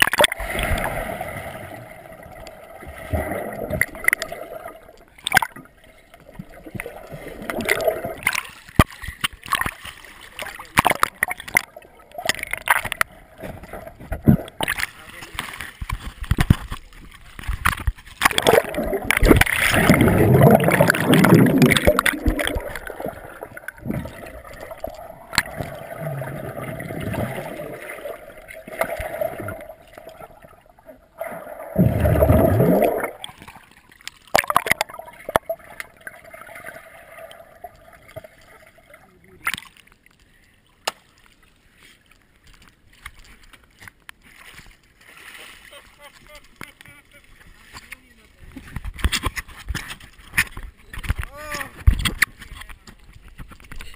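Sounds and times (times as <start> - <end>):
muffled underwater rushing and bubbling: 0.0 - 39.2.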